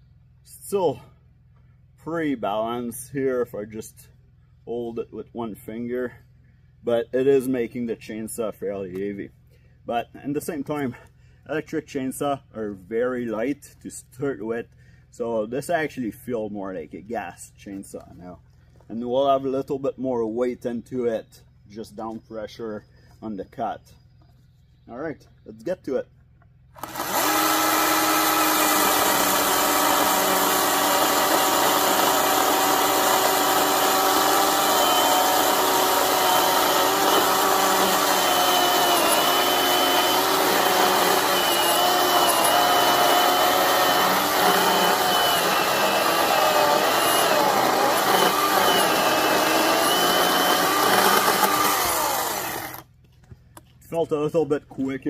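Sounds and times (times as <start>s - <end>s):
chainsaw cutting through log: 26.8s - 52.9s.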